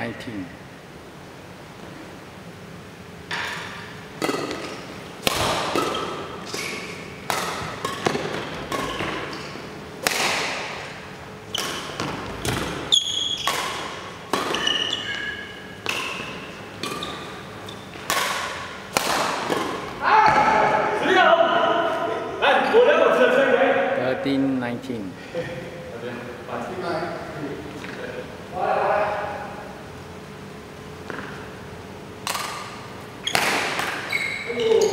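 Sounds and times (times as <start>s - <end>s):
shoes squeaking on court: 3.3s - 9.7s, 11.4s - 18.2s, 31.0s - 31.5s, 33.1s - 34.9s
racket hitting shuttlecock: 3.3s - 20.9s, 32.2s - 34.9s.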